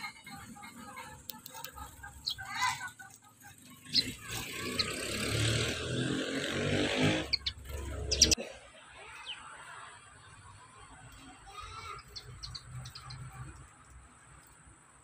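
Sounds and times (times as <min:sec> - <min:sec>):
sparrow chirps and ticks: 0:00.0 - 0:05.8, 0:07.0 - 0:08.4, 0:11.1 - 0:14.8.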